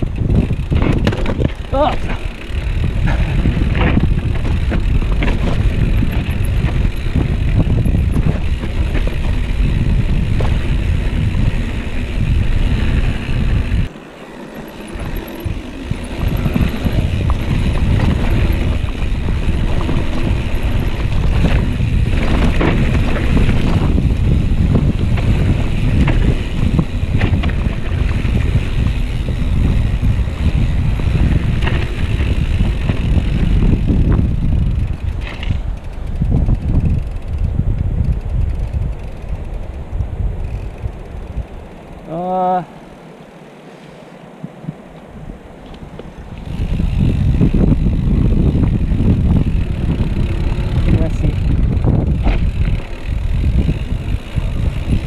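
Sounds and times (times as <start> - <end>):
bike knocks and rattles: 0.0 - 39.5, 45.6 - 55.0
wind buffeting microphone: 0.0 - 55.0.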